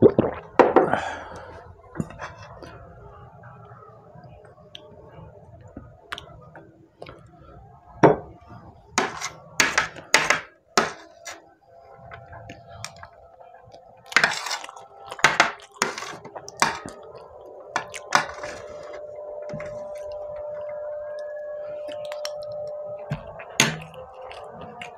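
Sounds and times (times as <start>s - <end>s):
metal spoon scraping a platter: 9.0s - 9.9s.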